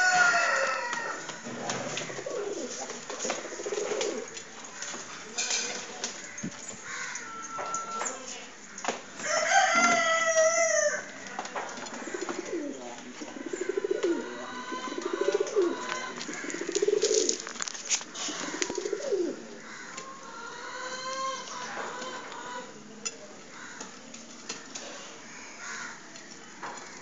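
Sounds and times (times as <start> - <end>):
pigeons cooing: 0.0 - 4.4, 9.6 - 22.9.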